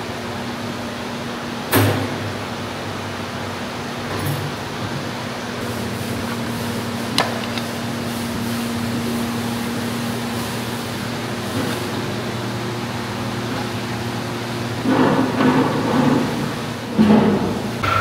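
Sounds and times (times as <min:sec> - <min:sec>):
fan humming: 0:00.0 - 0:18.0.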